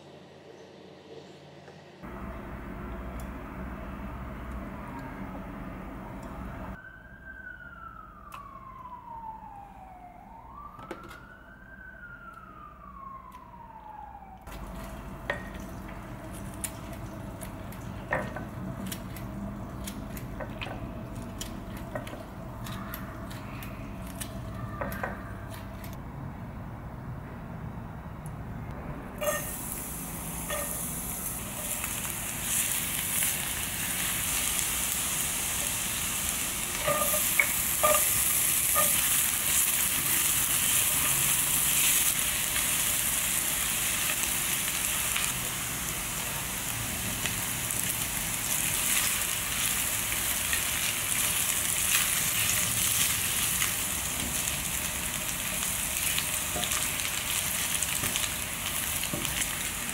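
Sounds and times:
garlic sizzling in oil: 29.2s - 59.9s.

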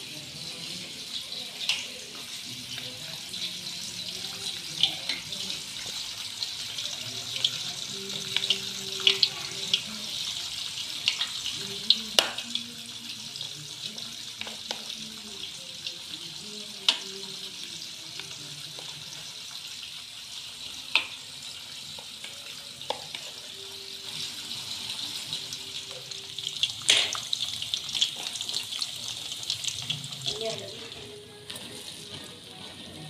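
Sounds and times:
batter sizzling in hot oil: 0.0s - 33.0s
metal spoon clicking against pan: 1.6s - 1.9s.

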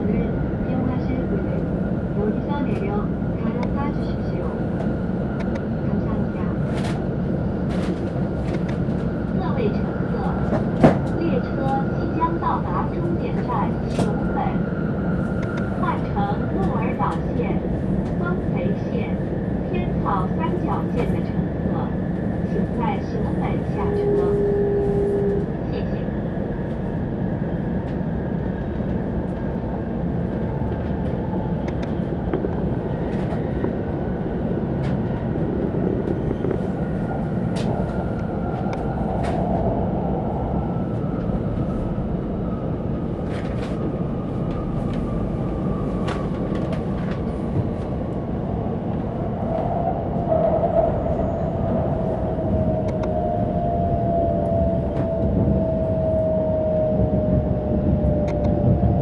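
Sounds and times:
train cabin rumble: 0.0s - 59.0s
lower whine: 48.1s - 59.0s.

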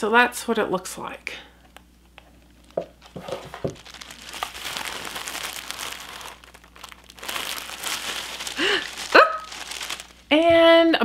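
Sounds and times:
tissue paper rustling and crinkling: 3.0s - 10.3s.

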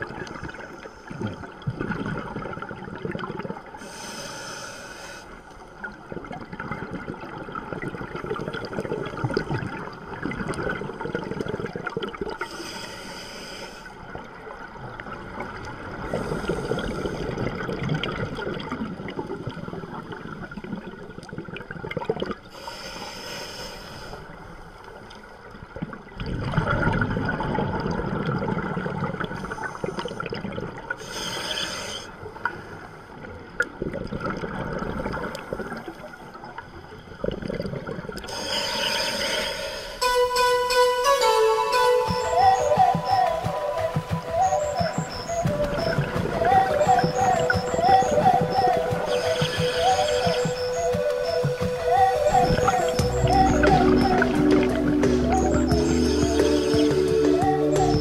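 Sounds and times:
hissing regulator inhalations: 3.8s - 5.4s, 12.5s - 14.0s, 31.0s - 32.2s, 38.3s - 40.1s.

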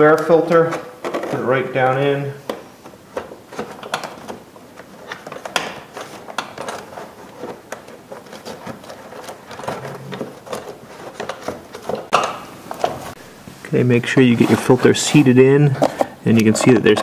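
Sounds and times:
plastic scraping against plastic: 2.8s - 13.2s, 14.0s - 17.0s.

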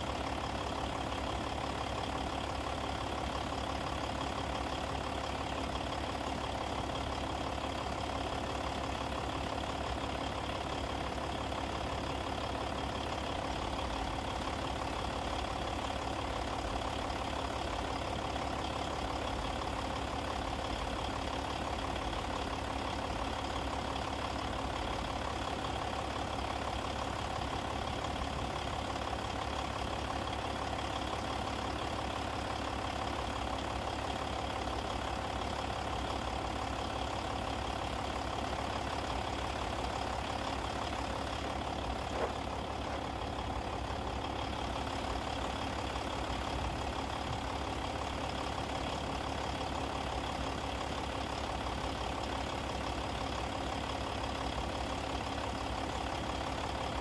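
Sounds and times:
engine idling: 0.0s - 57.0s.

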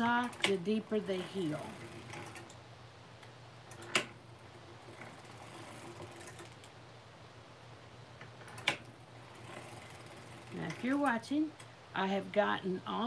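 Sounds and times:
knitting machine clicks: 0.0s - 2.6s, 3.6s - 6.8s, 8.2s - 11.7s.

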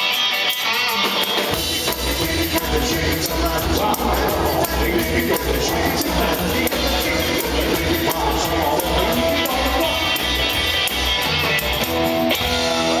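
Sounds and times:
rockabilly band playing: 0.0s - 13.0s
singer singing: 1.8s - 10.8s.

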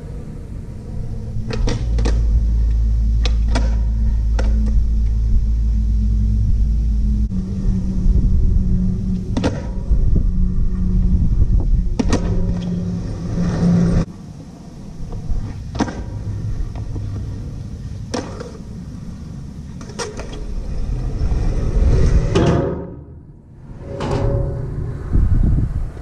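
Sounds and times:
skateboard wheels rolling on concrete: 0.0s - 5.9s, 7.3s - 24.2s.

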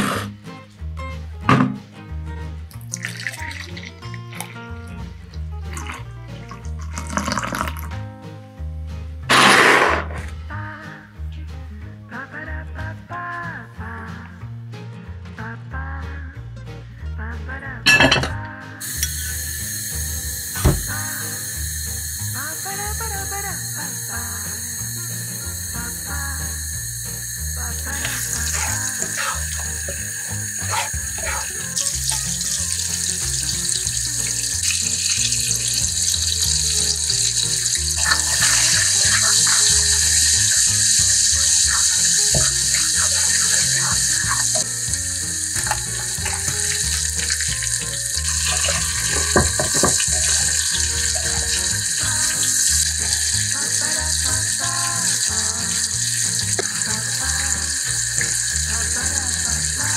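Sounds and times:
butter sizzling in frying pan: 18.8s - 59.9s
spatula scraping pan: 28.0s - 32.4s.

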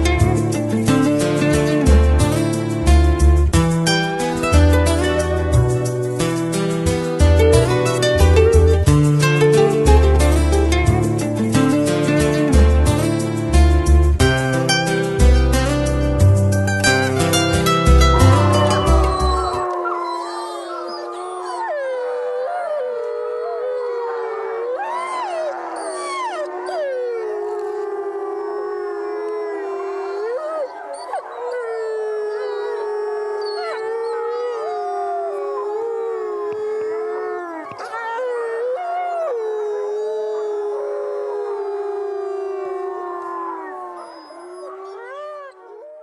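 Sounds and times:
wolves howling in chorus: 18.2s - 46.0s.

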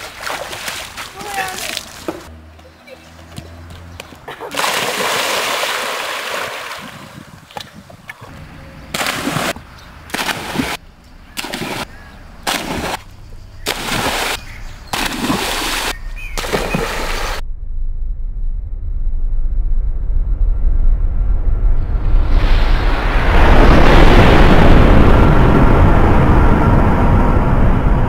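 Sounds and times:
splashes in a swimming pool: 0.0s - 2.2s, 4.5s - 7.2s, 8.9s - 10.8s, 11.4s - 13.0s, 13.6s - 17.4s.

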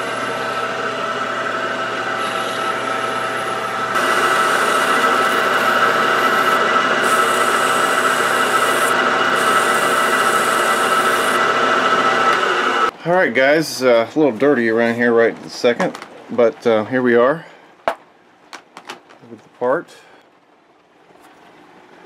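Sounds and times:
metal lathe motor whine: 0.0s - 12.9s.

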